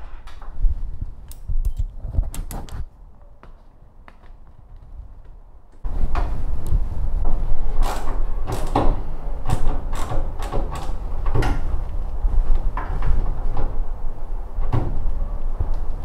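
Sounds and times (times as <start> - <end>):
steady low rumble: 0.5 - 7.8.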